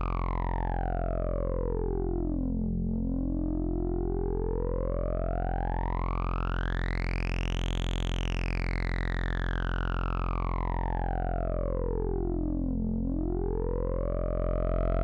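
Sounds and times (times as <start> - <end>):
synthesizer drone with filter sweep: 0.0 - 15.0.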